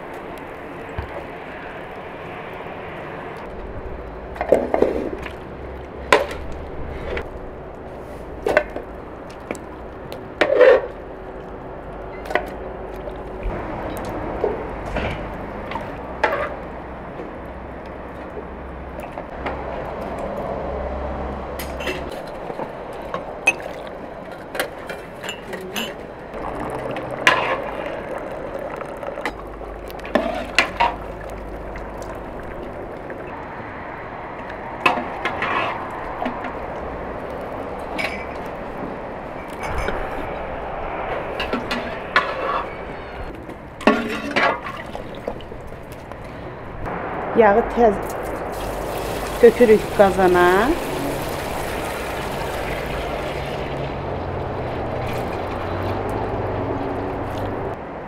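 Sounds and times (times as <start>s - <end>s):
broth splashing and dripping: 22.9s - 25.3s, 26.3s - 39.6s, 43.8s - 46.7s, 48.0s - 57.8s.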